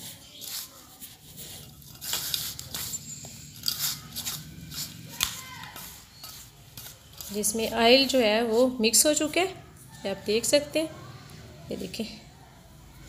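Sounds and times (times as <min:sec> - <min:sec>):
hands rustling flour in a bowl: 0:00.0 - 0:09.3.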